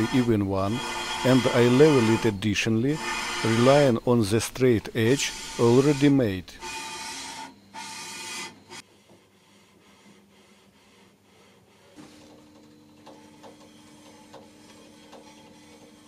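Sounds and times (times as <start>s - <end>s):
rag wiping metal: 0.0s - 8.5s.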